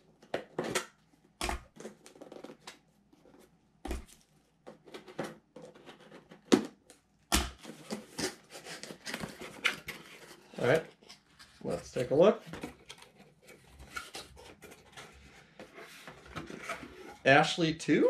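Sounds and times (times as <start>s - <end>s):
cardboard flaps rustling and scraping: 7.6s - 17.3s.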